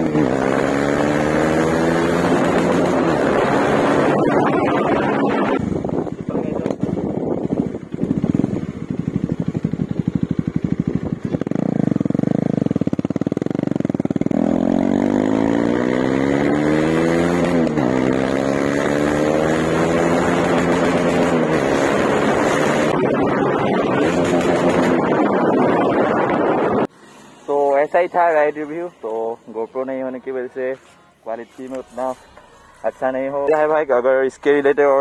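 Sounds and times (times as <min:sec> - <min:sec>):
loud unmuffled motorcycle engine: 0:00.0 - 0:26.9.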